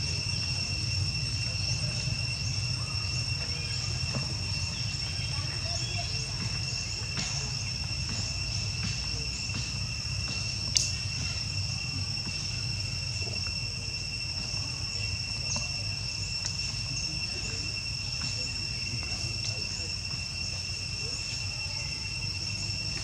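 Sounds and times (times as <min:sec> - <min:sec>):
insects droning: 0:00.0 - 0:23.0.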